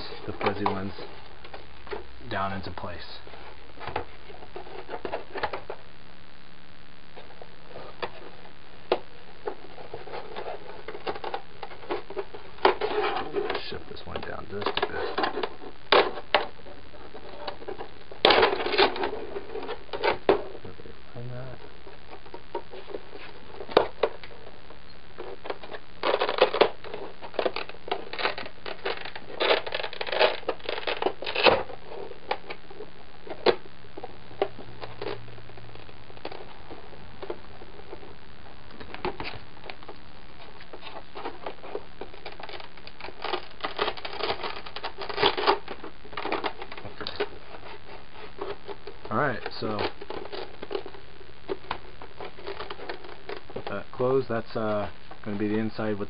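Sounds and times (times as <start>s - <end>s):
plastic armor clicking and crinkling: 9.4s - 16.5s, 25.2s - 32.6s, 40.6s - 53.8s.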